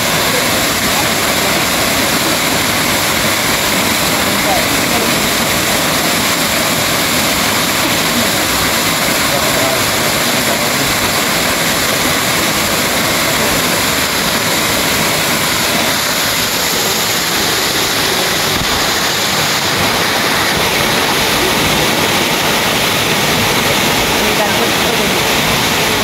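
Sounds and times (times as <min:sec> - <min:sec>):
waterfall rushing: 0:00.0 - 0:26.0.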